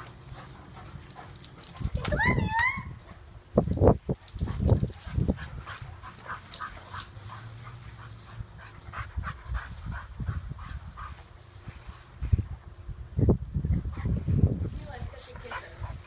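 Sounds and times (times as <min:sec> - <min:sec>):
dog panting: 0:04.4 - 0:11.5, 0:15.3 - 0:16.0.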